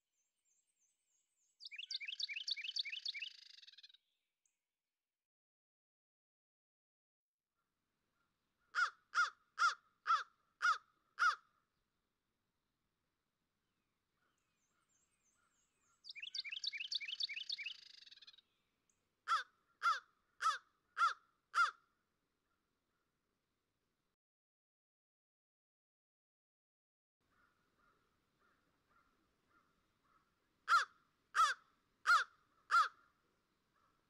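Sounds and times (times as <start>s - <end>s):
crow cawing: 8.6s - 11.5s, 19.3s - 21.8s, 27.3s - 34.0s.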